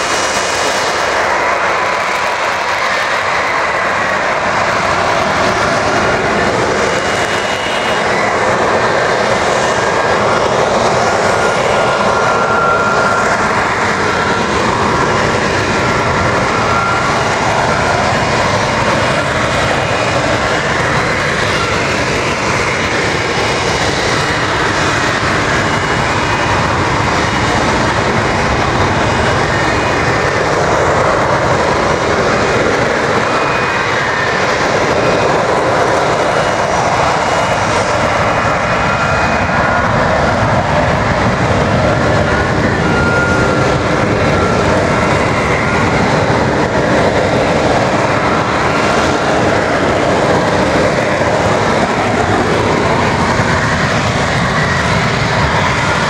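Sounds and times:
jet engine roaring: 0:00.0 - 0:56.0.

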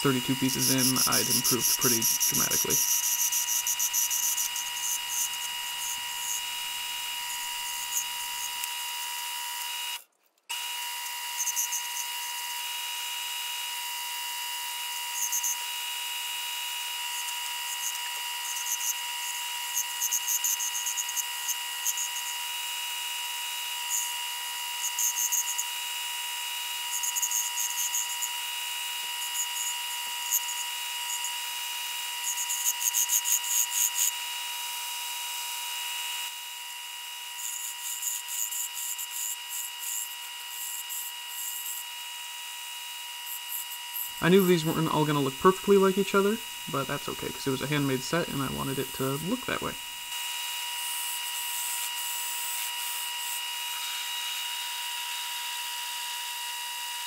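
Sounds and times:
turning tool scraping wood: 0:00.0 - 0:08.7
wood lathe whining: 0:00.0 - 0:25.9, 0:26.5 - 0:34.2, 0:35.8 - 0:50.2, 0:51.6 - 0:55.6.

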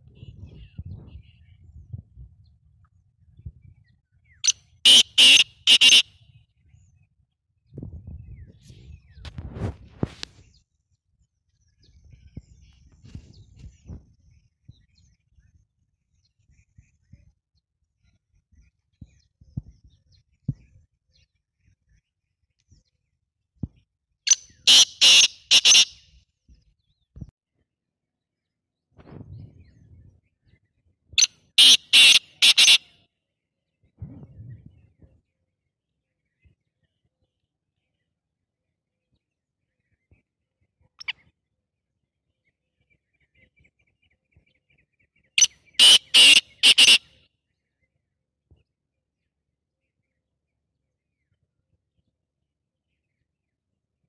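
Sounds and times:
bird harsh rasping call: 0:04.4 - 0:06.2, 0:24.3 - 0:26.0, 0:31.6 - 0:33.0, 0:45.4 - 0:47.2.

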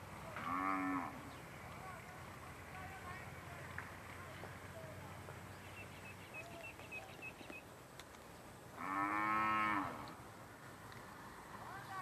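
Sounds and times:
cow mooing: 0:00.4 - 0:01.2, 0:08.8 - 0:10.1.

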